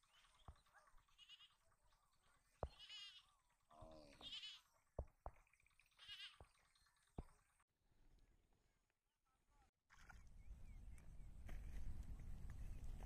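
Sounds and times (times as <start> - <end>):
faint livestock bleating: 1.1 - 1.7, 2.6 - 4.7, 6.0 - 6.4.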